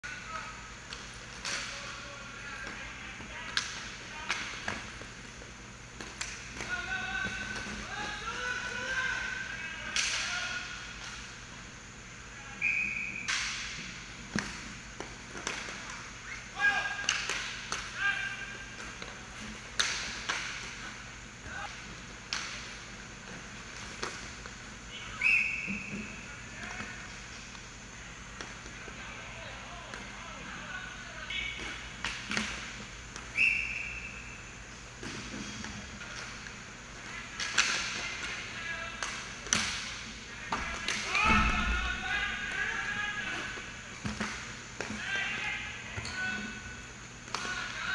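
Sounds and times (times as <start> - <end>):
hockey sticks and puck clacking: 0.9 - 11.2, 13.2 - 27.4, 31.3 - 34.0, 35.0 - 46.5, 47.2 - 47.9
hockey sticks clacking: 17.0 - 20.9, 21.7 - 23.0, 35.1 - 45.5.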